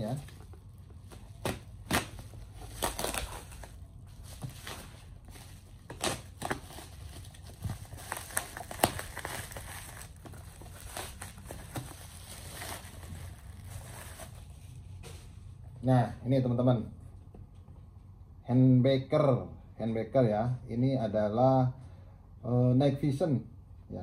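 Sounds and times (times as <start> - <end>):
bubble wrap crinkling and crackling: 0.0 - 15.0.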